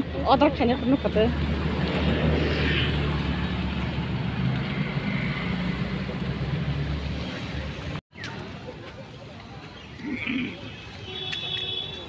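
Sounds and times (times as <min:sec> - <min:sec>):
road noise: 0:00.0 - 0:12.0.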